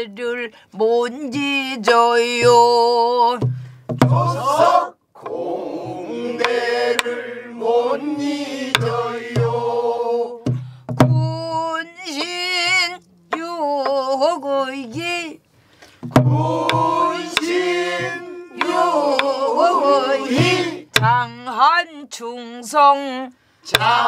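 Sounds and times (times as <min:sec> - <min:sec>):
deep drum thumps: 0:03.4 - 0:06.6, 0:08.7 - 0:09.7, 0:10.4 - 0:11.8, 0:16.0 - 0:19.2, 0:20.3 - 0:21.3.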